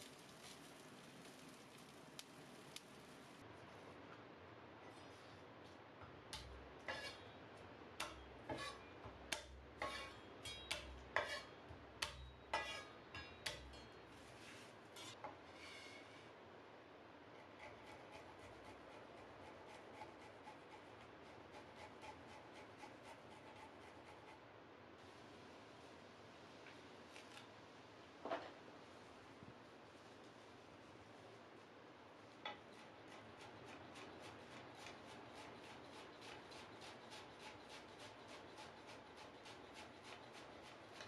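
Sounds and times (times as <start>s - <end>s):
garlic scraping on metal grater: 6.8s - 7.2s, 8.5s - 12.9s.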